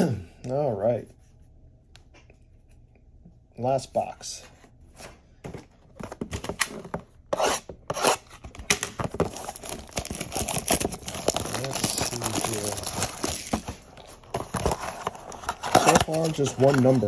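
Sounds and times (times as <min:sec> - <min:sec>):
packaging tearing and crinkling: 0:08.0 - 0:17.0.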